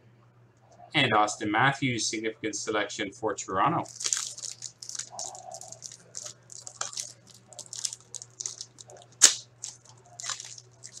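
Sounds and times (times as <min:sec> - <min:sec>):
foil wrappers crinkling and tearing: 0:03.8 - 0:11.0.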